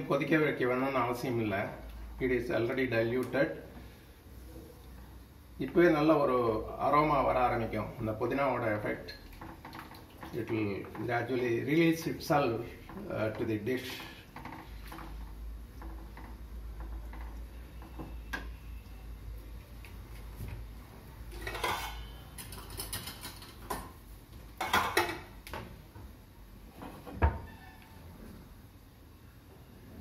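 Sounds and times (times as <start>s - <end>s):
wooden spatula stirring liquid in pan: 12.8s - 18.3s
kitchen utensils clattering: 21.3s - 24.0s, 24.6s - 25.4s.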